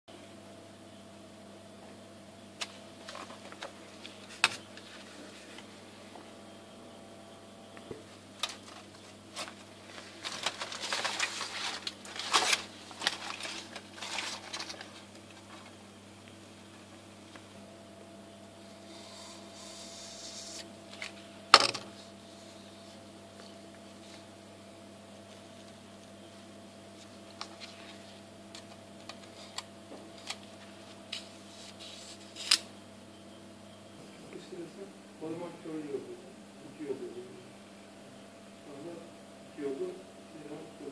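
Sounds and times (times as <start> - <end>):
steady low hum: 0.1 - 40.9
foil and plastic crinkling: 8.4 - 15.7.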